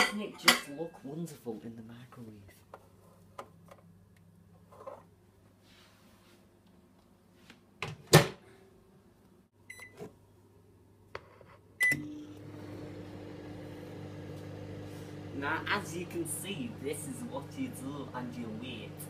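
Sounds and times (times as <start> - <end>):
microwave oven humming: 11.8 - 19.0.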